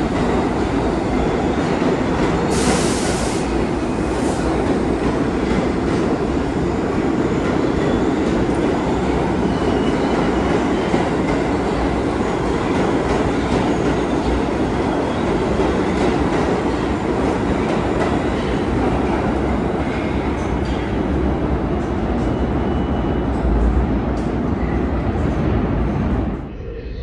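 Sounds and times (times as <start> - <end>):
subway train wheels rumbling: 0.0 - 27.0.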